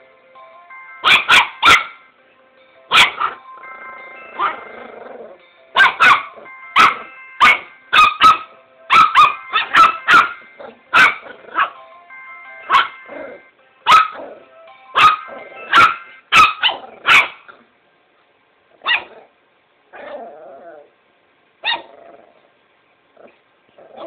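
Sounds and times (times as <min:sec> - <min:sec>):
electronic ringtone melody: 0:00.0 - 0:16.3
small dog barking: 0:01.0 - 0:02.0, 0:02.9 - 0:03.4, 0:04.4 - 0:04.6, 0:05.8 - 0:11.8, 0:12.7 - 0:13.0, 0:13.9 - 0:14.3, 0:15.0 - 0:17.6, 0:18.8 - 0:19.3, 0:21.6 - 0:22.0.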